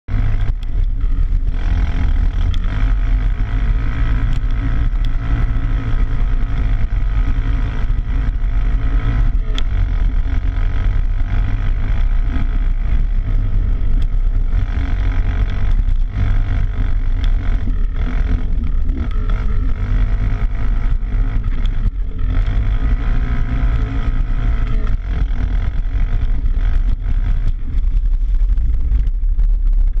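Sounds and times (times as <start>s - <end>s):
atv engine revving: 0.0s - 29.2s.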